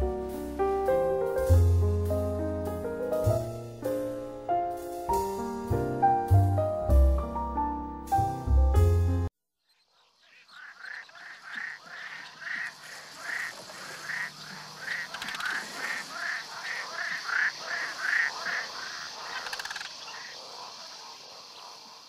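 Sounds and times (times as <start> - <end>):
repeated animal calls: 9.6 - 22.0
steady hiss: 12.4 - 22.0.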